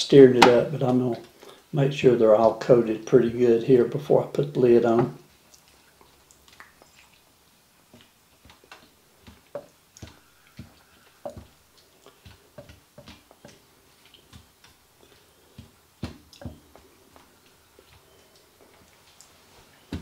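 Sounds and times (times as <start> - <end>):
spatula tapping pot: 8.0 - 16.9.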